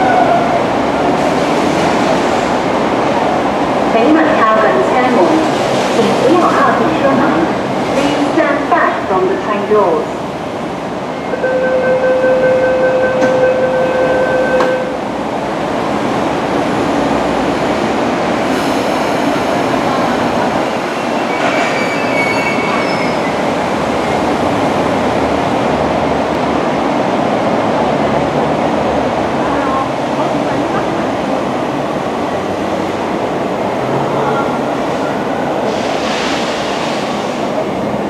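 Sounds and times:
train rolling rumble: 0:00.0 - 0:38.0
steady high tone: 0:11.2 - 0:15.0
train wheel squeals: 0:21.0 - 0:23.4.

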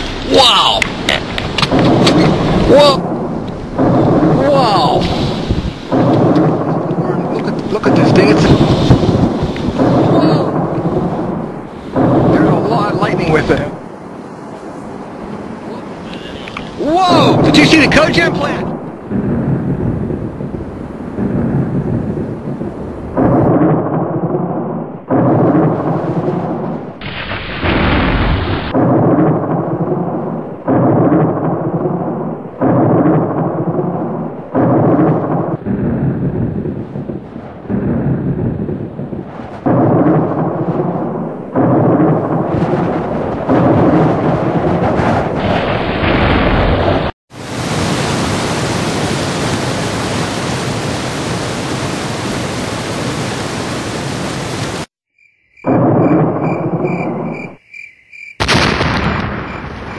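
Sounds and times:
thunder: 0:00.0 - 0:15.1, 0:17.0 - 0:54.9, 0:55.6 - 0:57.6, 0:58.4 - 0:59.9
heavy rain: 0:00.0 - 0:23.7, 0:25.0 - 0:54.9
fast floodwater rushing: 0:04.0 - 0:10.6, 0:47.3 - 0:54.9.

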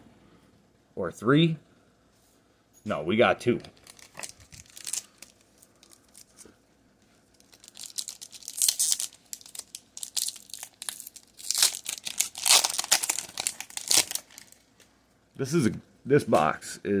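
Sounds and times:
foil pack crinkling and tearing: 0:03.7 - 0:06.5, 0:07.3 - 0:14.6.

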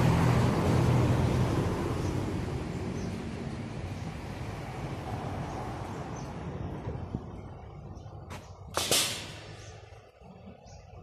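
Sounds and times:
car driving past: 0:00.0 - 0:06.3.

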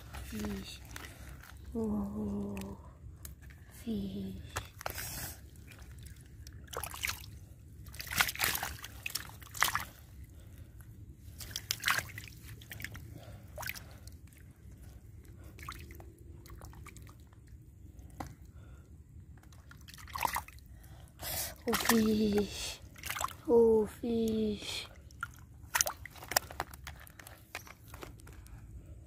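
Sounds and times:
fish splashing in puddle: 0:04.6 - 0:10.0, 0:11.4 - 0:13.0, 0:19.5 - 0:20.6, 0:21.7 - 0:23.4, 0:25.2 - 0:27.3.

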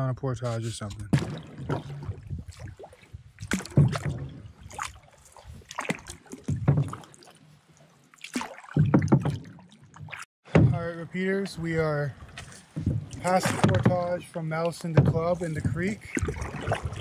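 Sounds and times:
paddle splashing: 0:01.0 - 0:17.0
paddle knocking on canoe hull: 0:03.4 - 0:04.9, 0:06.3 - 0:07.1, 0:08.7 - 0:10.8, 0:12.4 - 0:14.2, 0:14.8 - 0:17.0.

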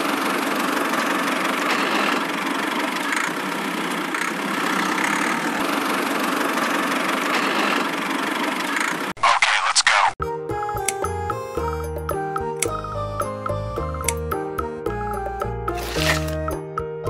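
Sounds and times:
toy electric motor and gearbox running: 0:00.9 - 0:09.1, 0:15.7 - 0:16.5.

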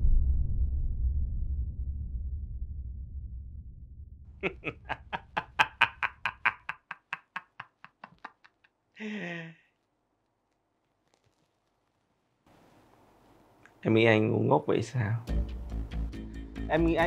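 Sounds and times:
man laughing loudly: 0:04.4 - 0:09.6
man sighing: 0:09.0 - 0:09.7.

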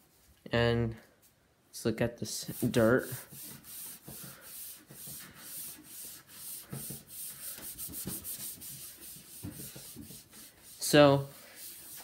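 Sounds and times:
sponge scrubbing plastic: 0:02.4 - 0:12.0.

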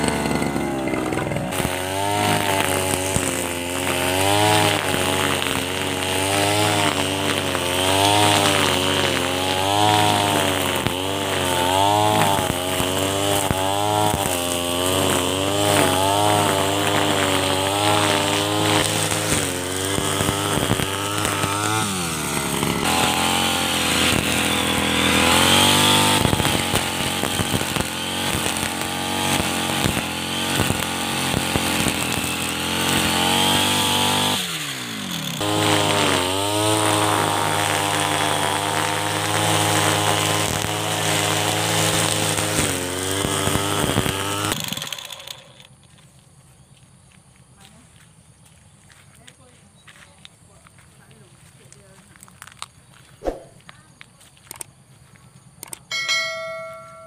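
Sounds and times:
brush cutter cutting grass: 0:00.0 - 0:47.8, 0:50.7 - 0:57.0.

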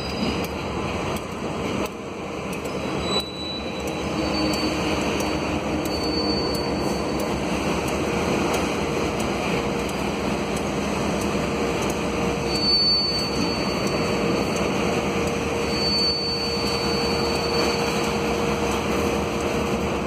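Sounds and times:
train wheels rumbling on rails: 0:00.0 - 0:20.0
high-pitched squeal: 0:02.6 - 0:07.3, 0:12.3 - 0:14.3, 0:15.5 - 0:18.6.

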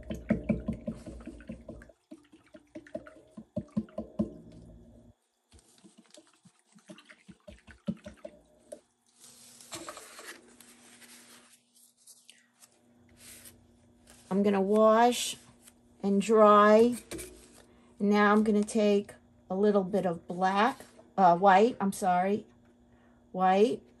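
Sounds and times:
taps and splashes against tub: 0:00.0 - 0:04.6, 0:05.6 - 0:08.8
paintbrush rinsed in water: 0:00.0 - 0:11.7.

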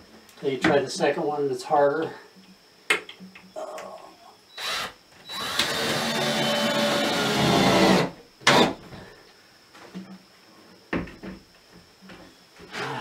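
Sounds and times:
power drill driving a screw: 0:04.6 - 0:08.7.

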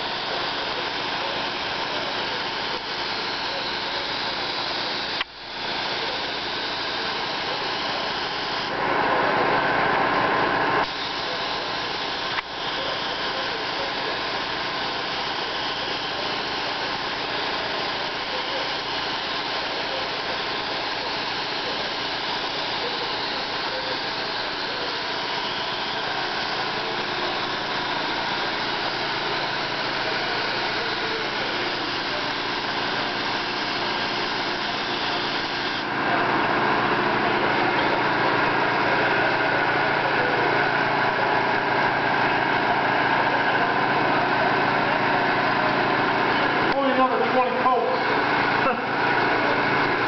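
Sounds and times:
paint spray gun hissing: 0:00.0 - 0:08.8, 0:10.8 - 0:38.5
machine hum: 0:00.0 - 0:50.0.

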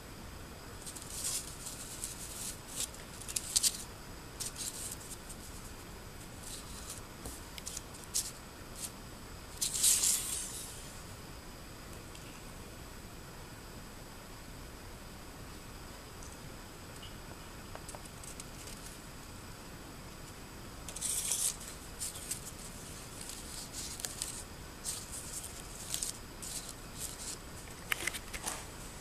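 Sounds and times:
paper rustling and crackling: 0:00.8 - 0:08.9, 0:09.6 - 0:10.6, 0:20.9 - 0:29.0.

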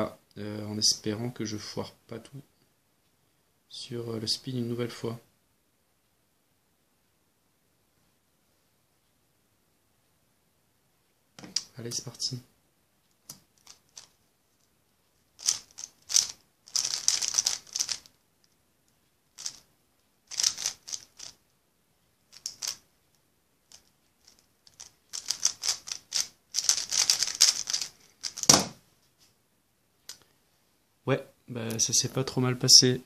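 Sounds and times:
puzzle cube clacking turns: 0:11.4 - 0:12.0, 0:13.3 - 0:14.2, 0:15.4 - 0:18.2, 0:19.3 - 0:19.7, 0:20.3 - 0:21.4, 0:22.3 - 0:22.9, 0:23.7 - 0:28.8
loud thump: 0:28.4 - 0:28.8.

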